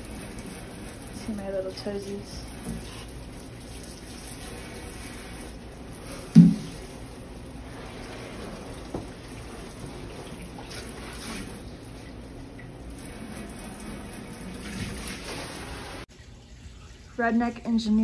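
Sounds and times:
water spraying onto glass: 0.0s - 12.0s.

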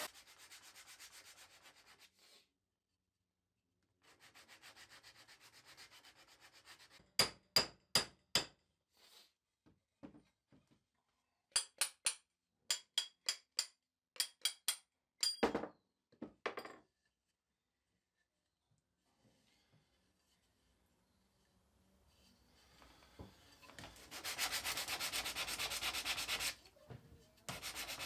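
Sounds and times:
wood rubbing on sandpaper: 0.0s - 2.1s, 23.9s - 26.6s, 27.5s - 28.0s.

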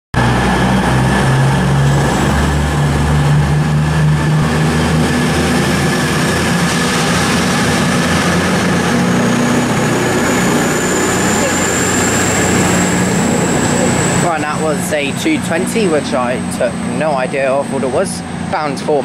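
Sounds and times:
diesel train engines droning: 0.1s - 19.0s
faint high whine: 8.9s - 16.7s.

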